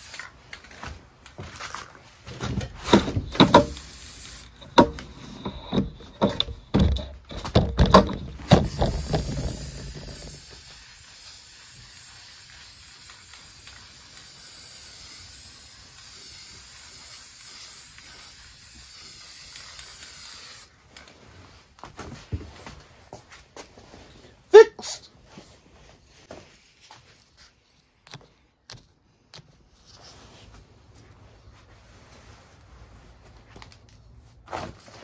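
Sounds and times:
spray paint can hissing: 0.0s - 0.4s, 3.2s - 5.1s, 8.4s - 20.8s
knocks and clatter: 4.7s - 10.3s.

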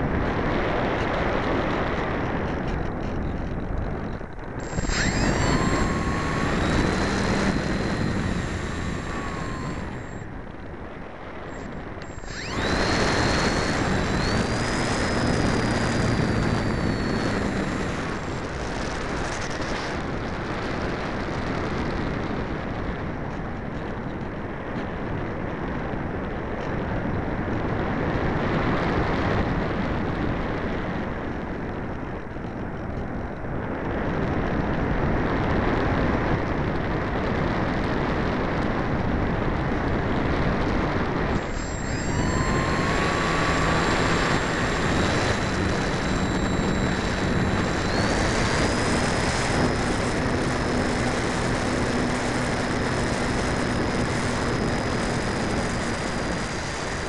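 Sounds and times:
electric motor whine: 0.0s - 22.2s, 38.9s - 57.0s
airflow rushing: 4.6s - 10.6s.

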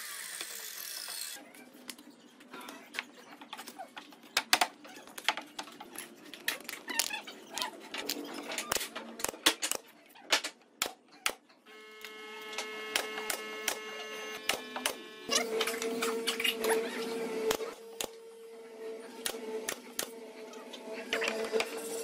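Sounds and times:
nail gun firing: 12.9s - 15.0s.

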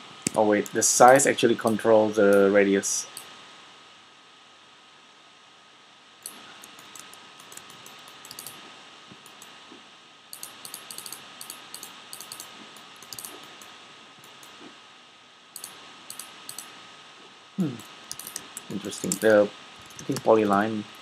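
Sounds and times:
thin high whine: 0.0s - 3.4s, 15.6s - 21.0s
faint steady hiss: 0.0s - 21.0s
mouse and keyboard clicks: 6.2s - 8.6s, 10.4s - 14.6s, 15.6s - 16.7s, 18.1s - 20.6s.

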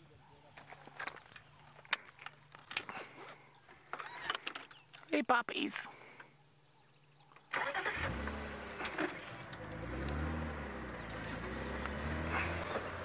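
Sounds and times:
vehicle engine starting and running: 7.4s - 13.0s.

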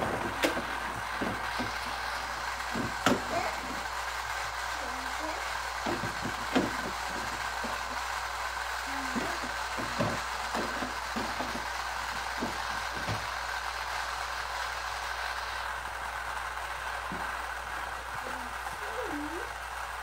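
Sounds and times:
plastic toy pieces knocking: 0.0s - 4.2s, 5.4s - 8.2s, 8.8s - 13.4s
steady background hum: 0.0s - 20.0s.

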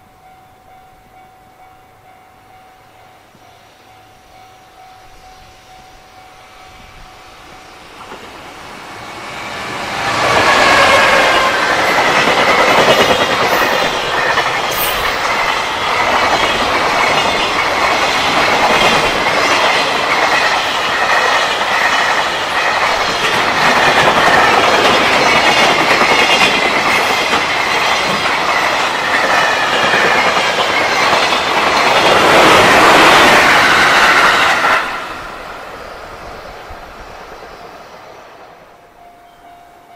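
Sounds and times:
level-crossing warning bell: 0.0s - 8.3s, 10.3s - 36.2s, 38.7s - 39.9s
freight train passing: 0.0s - 39.9s
train wheels clattering over rails: 9.1s - 35.5s.

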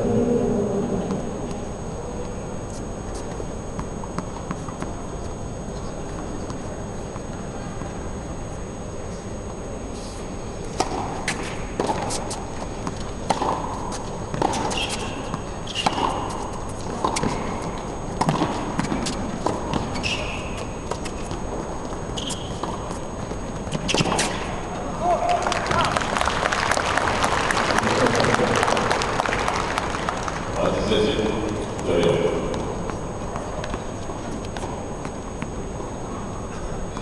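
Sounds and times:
rackets striking ball: 10.7s - 12.1s, 12.8s - 21.4s, 23.6s - 24.8s
ball bouncing: 12.8s - 17.6s, 18.2s - 21.4s
sneaker squeaks on court: 18.3s - 21.4s, 22.0s - 23.1s.

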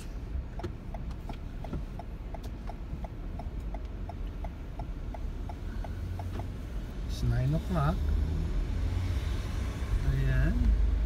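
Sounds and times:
turn signal clicking: 0.0s - 7.6s
car engine rumble: 0.0s - 11.0s
road noise: 0.0s - 11.0s.

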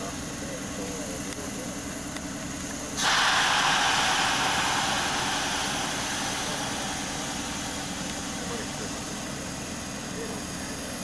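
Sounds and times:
low steady hum: 0.0s - 11.0s
compressed air hissing: 3.0s - 11.0s.

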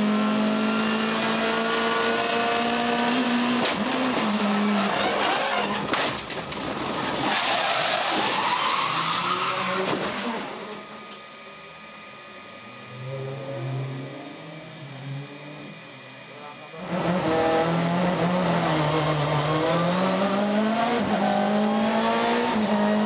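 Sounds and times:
car scraping and skidding: 3.8s - 10.9s
tyre squeal: 4.2s - 5.9s, 7.2s - 10.4s.

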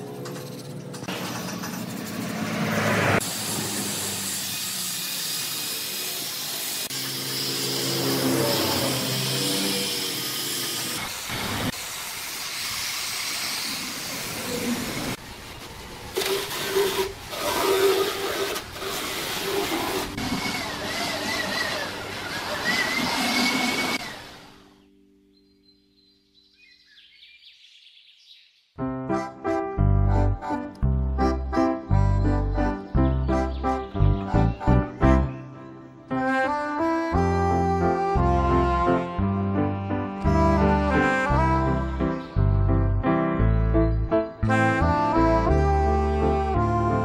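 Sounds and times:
angle grinder sanding wood: 3.2s - 15.2s, 16.2s - 24.5s.

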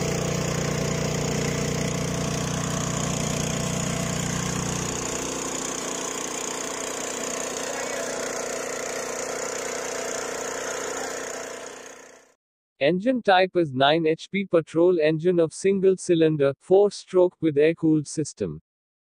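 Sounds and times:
rotary tines working soil: 0.0s - 12.3s
power weeder engine running: 0.0s - 12.4s.

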